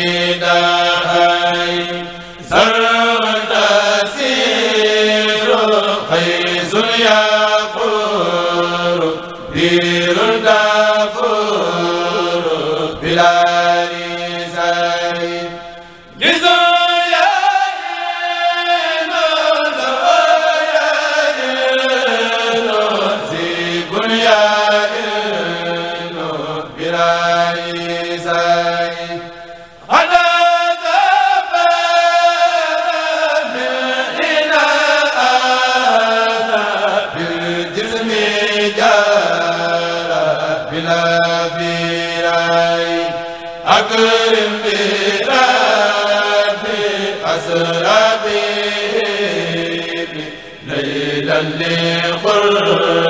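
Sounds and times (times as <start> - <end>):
men chanting through microphones: 0.0 - 53.0.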